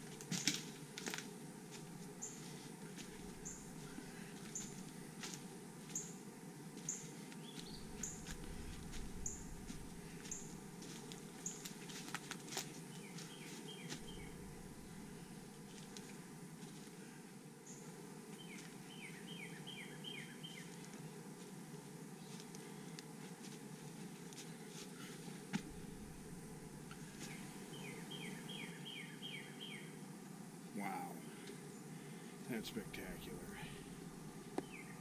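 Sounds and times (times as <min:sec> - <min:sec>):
footsteps: 0:00.0 - 0:06.0, 0:06.8 - 0:17.0, 0:23.2 - 0:27.7
bird singing down-slurred notes: 0:13.0 - 0:14.5, 0:18.4 - 0:20.6, 0:27.1 - 0:30.0, 0:34.6 - 0:35.0.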